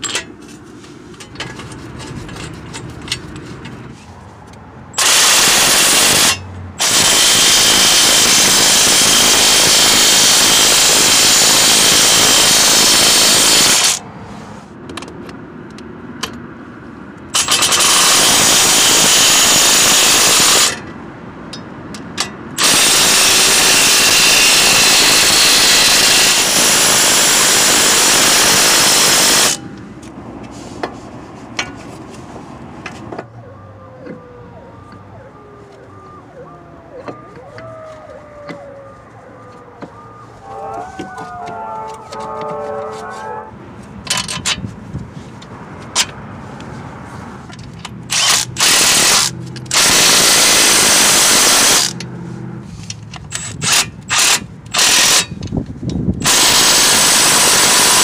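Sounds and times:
impact wrench driving bolts: 0:17.4 - 0:18.2, 0:44.0 - 0:44.6, 0:47.6 - 0:52.1.

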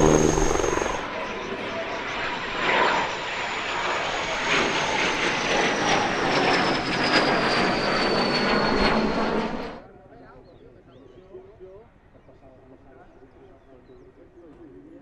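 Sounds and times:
jet engine roar and whine: 0:00.0 - 0:09.9.

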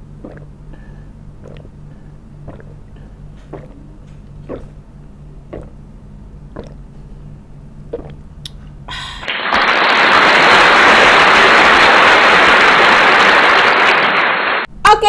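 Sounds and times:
person gulping water: 0:00.0 - 0:07.1, 0:07.8 - 0:09.3
faint low hum: 0:00.0 - 0:09.2.

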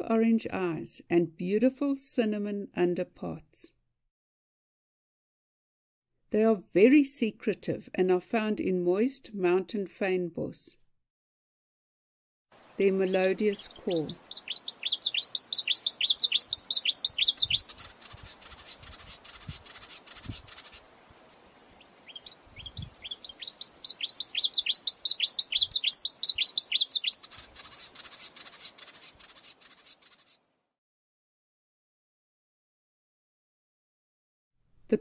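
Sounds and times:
warbler singing whistled notes: 0:12.6 - 0:30.4.

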